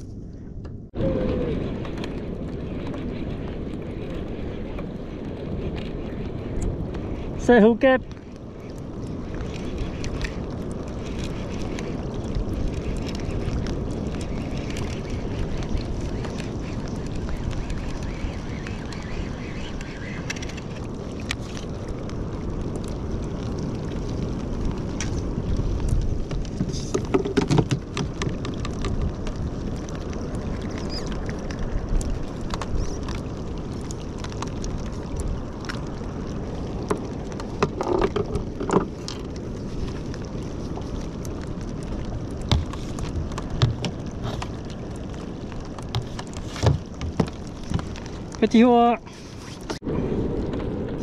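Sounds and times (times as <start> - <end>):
wind: 0.0 - 51.0
knocks and clicks of handling tackle: 26.6 - 29.0, 37.6 - 39.2.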